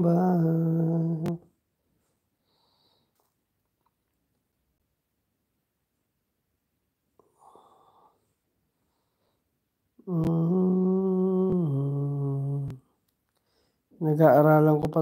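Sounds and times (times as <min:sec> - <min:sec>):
man humming held notes: 0:10.0 - 0:12.8.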